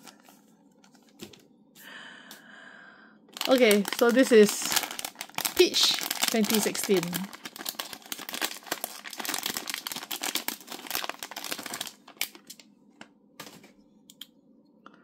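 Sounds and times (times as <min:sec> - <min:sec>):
plastic wrapping crinkling and tearing: 0:03.3 - 0:13.7.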